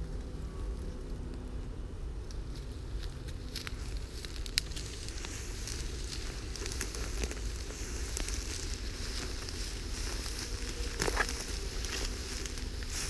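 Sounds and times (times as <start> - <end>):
dry grass and brushwood crackling: 0.0 - 13.0
steady low rumble: 0.0 - 13.0.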